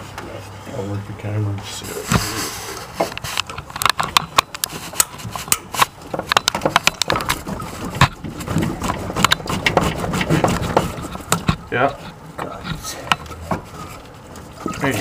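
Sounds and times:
rubber hose clicks and knocks: 0:03.0 - 0:11.7.

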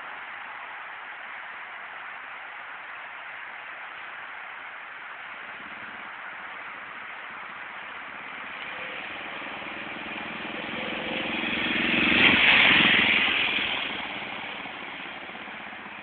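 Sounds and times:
motorcycle riding past: 0:05.4 - 0:16.0.

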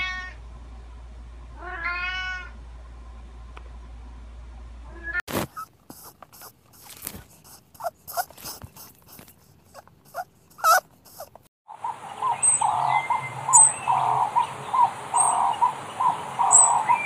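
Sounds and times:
animal squeaks: 0:05.3 - 0:11.4
chorus of animal calls: 0:07.4 - 0:17.0.

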